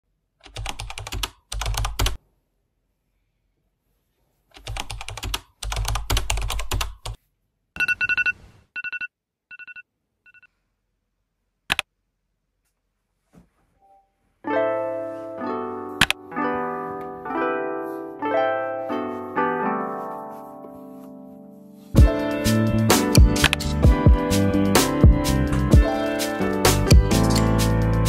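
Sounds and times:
keyboard typing: 0.4s - 2.2s, 4.6s - 7.2s, 16.0s - 16.2s, 23.0s - 23.9s
sharp click: 23.4s - 23.7s.

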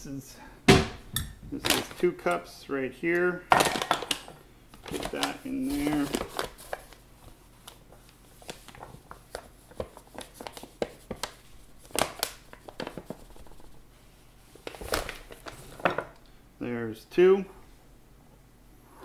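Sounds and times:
paper bag crinkling: 4.8s - 13.8s.

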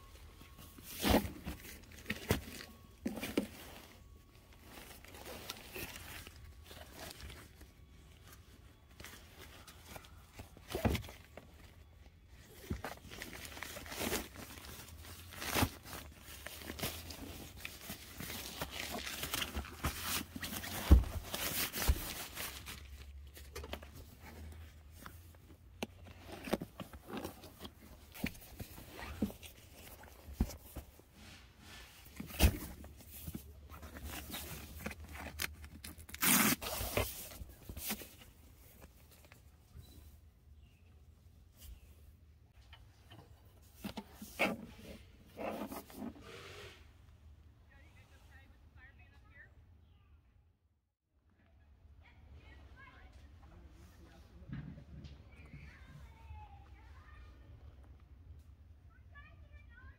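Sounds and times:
nylon fabric rustling: 0.1s - 39.6s.

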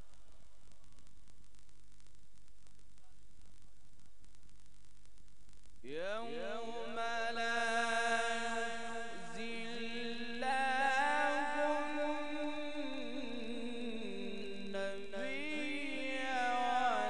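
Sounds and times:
man reciting melodically: 5.8s - 17.0s.

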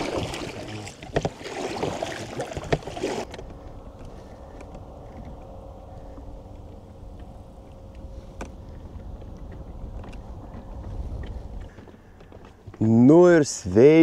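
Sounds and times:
low rumble of water and wind: 0.0s - 14.0s
faint steady hum: 3.3s - 12.5s.

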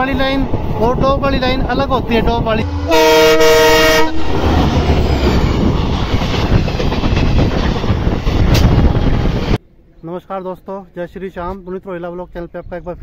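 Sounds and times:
train rumbling past: 0.0s - 9.6s
locomotive horn: 2.6s - 4.8s.

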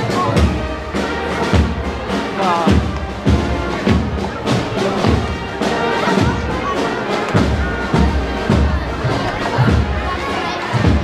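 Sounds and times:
brass band playing a march: 0.0s - 11.0s
crowd chatter: 0.0s - 11.0s
bass drum beat: 1.4s - 6.6s, 10.8s - 11.0s.

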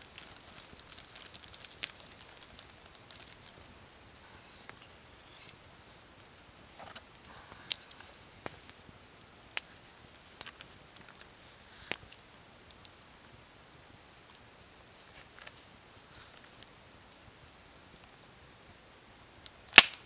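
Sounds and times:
plastic bag rustling: 0.0s - 4.8s.

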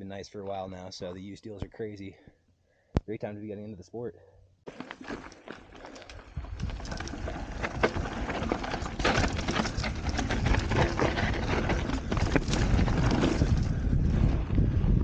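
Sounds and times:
tyres crunching over dirt: 4.7s - 14.5s
bike clicks and rattles: 4.7s - 14.6s
wind on microphone: 9.3s - 15.0s.

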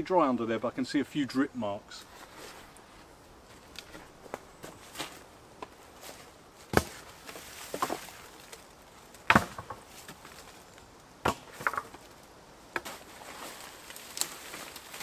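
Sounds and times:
wooden poles knocking together: 6.7s - 8.6s, 9.2s - 10.3s, 11.2s - 12.1s.

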